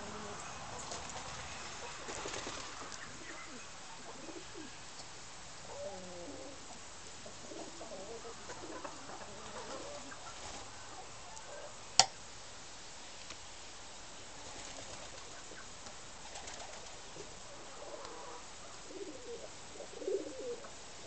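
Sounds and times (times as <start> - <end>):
birds calling: 0.0 - 11.8
outdoor background hiss: 0.0 - 21.0.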